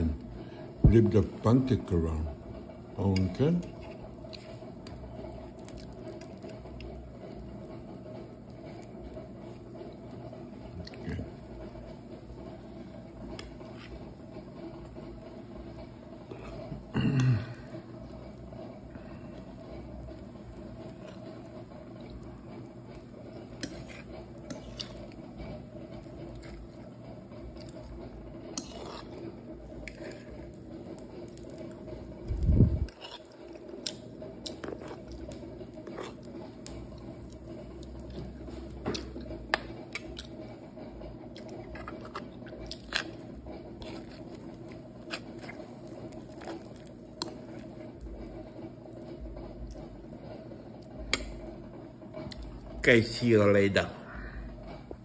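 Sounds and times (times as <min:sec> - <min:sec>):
steady low hum: 0:00.0 - 0:55.0
fork clicking and scraping on plate: 0:23.5 - 0:25.2, 0:28.5 - 0:29.2
person chewing: 0:31.4 - 0:40.4, 0:41.3 - 0:48.4.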